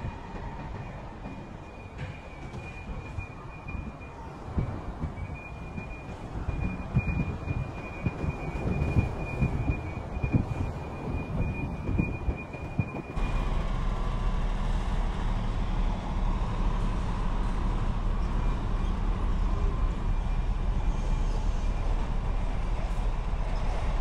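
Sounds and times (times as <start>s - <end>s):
wind buffeting microphone: 0.0s - 14.2s
truck diesel engine rumble: 1.2s - 24.0s.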